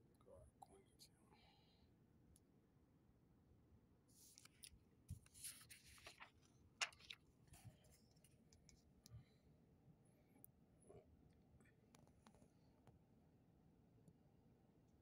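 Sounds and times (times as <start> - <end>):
paper rustling: 4.2 - 8.3.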